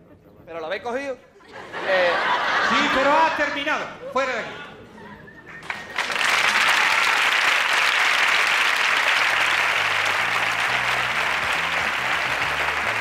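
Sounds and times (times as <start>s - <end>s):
audience applauding: 5.5s - 13.0s.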